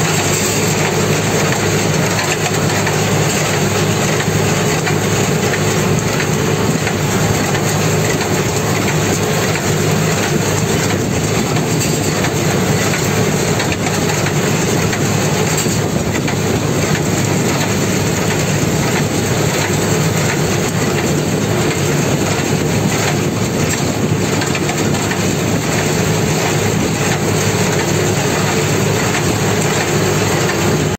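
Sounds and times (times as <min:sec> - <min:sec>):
tractor engine running under load: 0:00.0 - 0:30.9.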